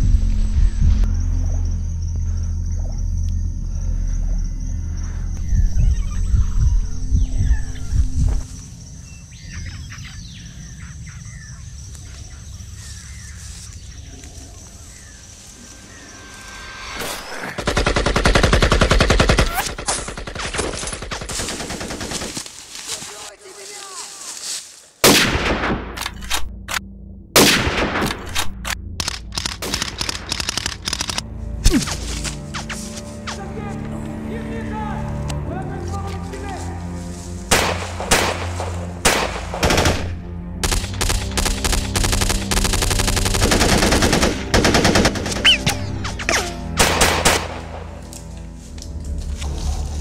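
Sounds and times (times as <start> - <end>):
low steady rumble: 0.0 - 8.9
birds calling: 0.4 - 25.0, 29.9 - 48.6
rifle shot with echo: 25.0 - 25.9, 37.5 - 42.8
automatic gunfire bursts: 39.1 - 45.6.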